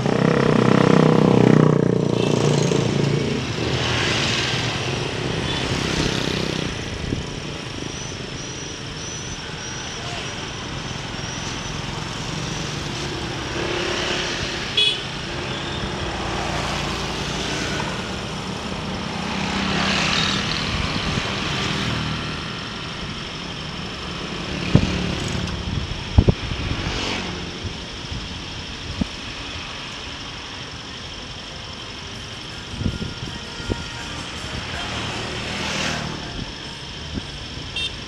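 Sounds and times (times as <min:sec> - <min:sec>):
motorcycle engine running: 0:00.0 - 0:07.4
road and wind noise: 0:00.0 - 0:38.0
high horn toot: 0:14.8 - 0:15.8, 0:32.6 - 0:34.9, 0:37.7 - 0:38.0.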